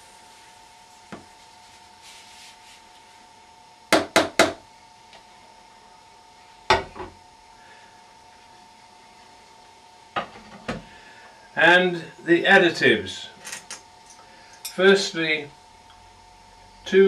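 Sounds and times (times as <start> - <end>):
faint steady hum: 0.0 - 17.0
bowl knocking on worktop: 6.7 - 7.2.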